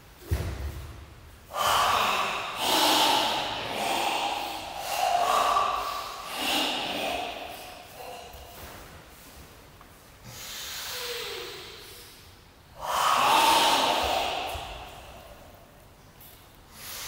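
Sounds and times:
thump: 0:00.2 - 0:01.0
forceful breathing: 0:01.4 - 0:17.0.

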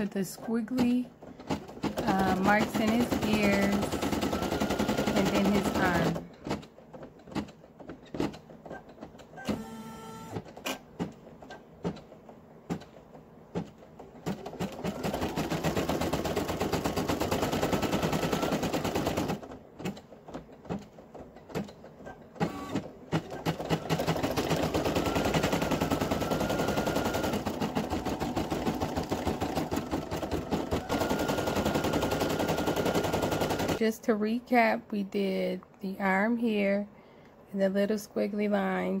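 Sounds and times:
embroidery machine stitching: 0:00.0 - 0:10.7, 0:14.2 - 0:21.8, 0:22.4 - 0:33.8.

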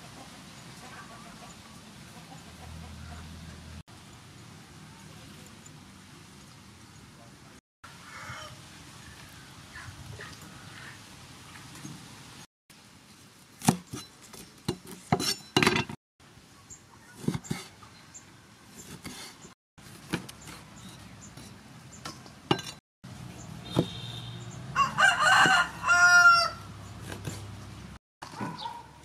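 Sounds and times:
rooster crowing: 0:07.9 - 0:09.5, 0:24.7 - 0:26.8
cleaver chopping on wooden block: 0:13.6 - 0:14.0.

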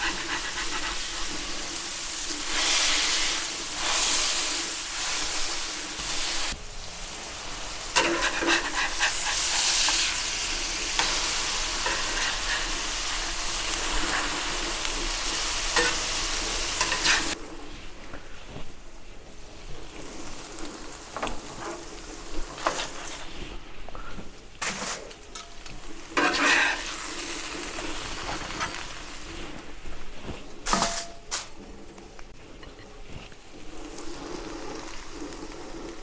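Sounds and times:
meat and onions sizzling on griddle: 0:00.0 - 0:17.8, 0:19.4 - 0:23.6, 0:25.5 - 0:31.0, 0:33.6 - 0:36.0
metal spatula scraping and clicking: 0:08.0 - 0:10.0, 0:11.0 - 0:14.4, 0:15.7 - 0:16.1, 0:16.8 - 0:17.4.

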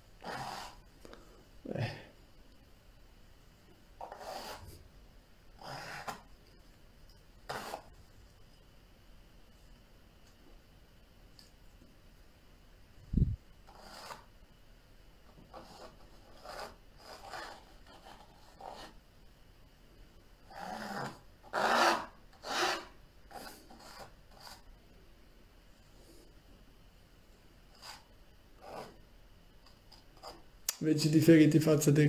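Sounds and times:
palette knife scraping paint: 0:00.2 - 0:00.9, 0:04.0 - 0:04.8, 0:05.6 - 0:06.3, 0:07.4 - 0:07.9, 0:13.6 - 0:14.3, 0:15.4 - 0:19.0, 0:20.5 - 0:24.7, 0:27.7 - 0:29.0, 0:29.6 - 0:30.5.

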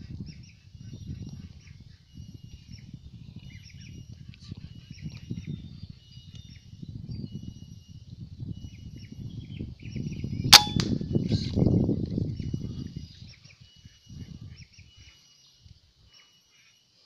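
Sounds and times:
air rifle shot: 0:10.6 - 0:11.0.

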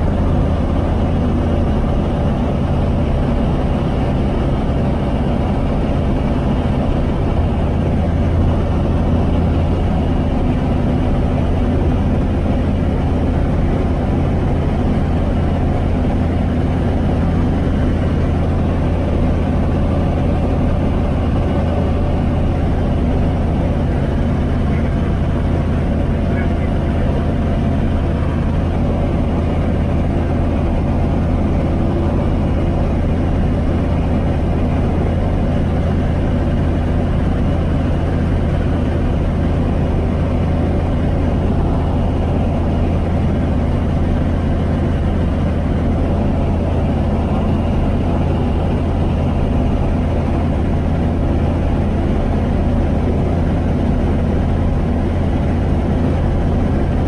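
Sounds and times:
aircraft engine and propeller droning: 0:00.0 - 0:57.0.

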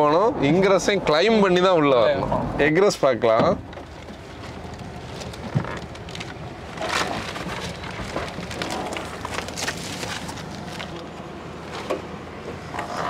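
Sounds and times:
plastic crinkling: 0:03.7 - 0:11.9.

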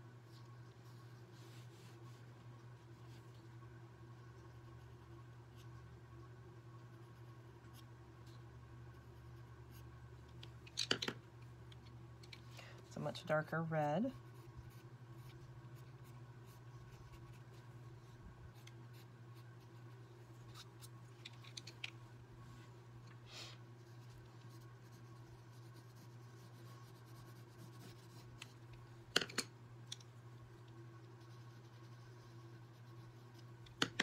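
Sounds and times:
steady low hum: 0:00.0 - 0:34.0
pencil scratching on paper: 0:14.1 - 0:17.6, 0:23.8 - 0:28.6, 0:31.0 - 0:33.5.

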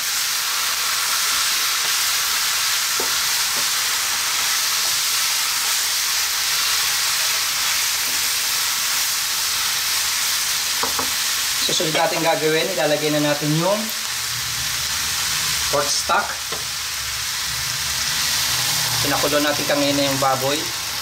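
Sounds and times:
food sizzling in a wok: 0:00.0 - 0:21.0.

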